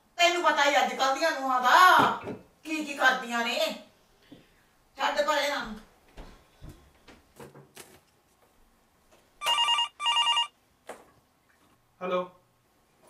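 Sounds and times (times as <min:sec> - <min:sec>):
telephone ringing electronically: 0:09.4 - 0:10.6.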